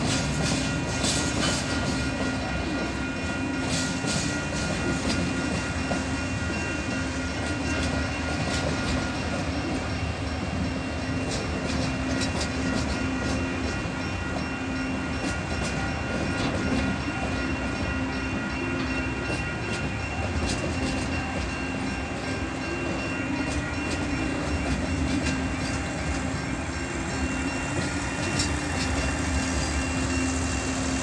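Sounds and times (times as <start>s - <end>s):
freight train rumbling and clattering: 0.0s - 31.0s
level crossing bell ringing: 0.0s - 31.0s.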